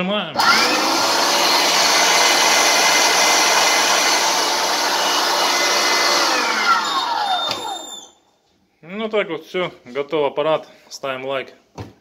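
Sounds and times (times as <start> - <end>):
meat grinder motor whine: 0.4 - 8.1
motor spinning down: 0.4 - 8.1.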